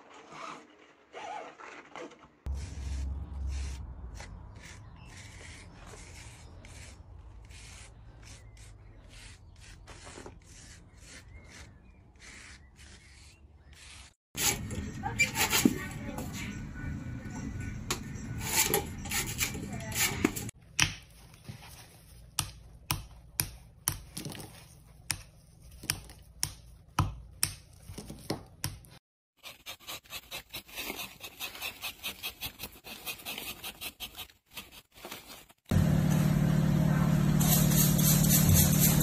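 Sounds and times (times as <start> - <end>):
loud steady machine hum: 35.7 - 39.0.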